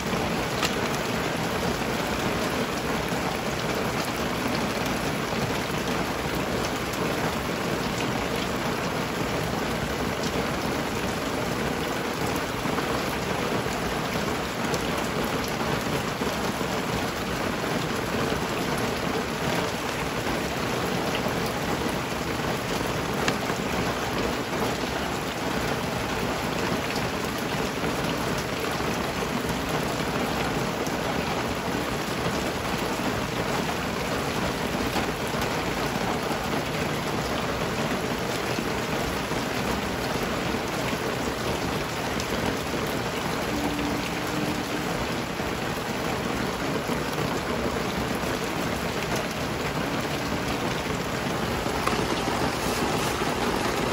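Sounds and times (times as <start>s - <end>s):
hiss of falling water: 0.0s - 53.9s.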